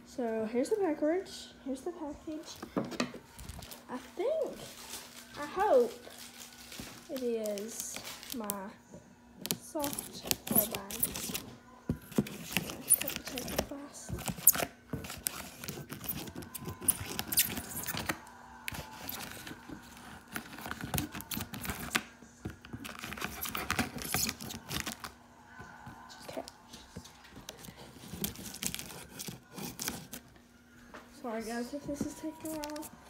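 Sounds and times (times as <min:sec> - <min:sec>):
scissors cutting packing tape: 0:09.5 - 0:11.4, 0:12.0 - 0:22.1, 0:22.7 - 0:25.1, 0:28.0 - 0:30.2
tape tearing: 0:09.5 - 0:11.4, 0:12.0 - 0:22.1, 0:22.7 - 0:25.2, 0:28.0 - 0:30.3
cardboard scraping: 0:22.7 - 0:25.1, 0:27.8 - 0:30.2.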